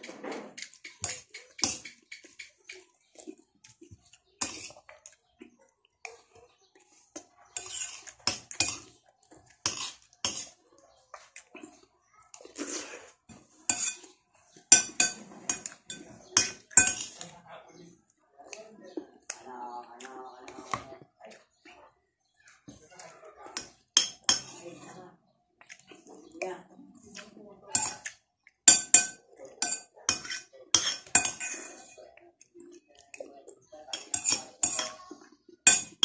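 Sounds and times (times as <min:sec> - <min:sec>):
metal spoon scraping ceramic plate: 0:04.4 - 0:04.8, 0:07.6 - 0:09.0, 0:09.6 - 0:10.6, 0:12.5 - 0:17.2, 0:28.7 - 0:32.0, 0:33.9 - 0:35.0.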